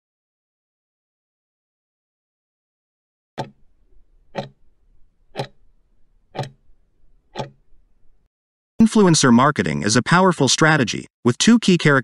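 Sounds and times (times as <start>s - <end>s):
clock ticking: 3.4s - 8.3s.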